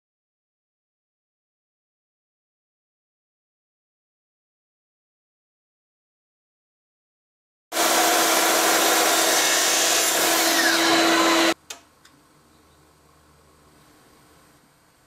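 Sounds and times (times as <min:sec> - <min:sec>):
electric power saw running: 0:07.7 - 0:11.6.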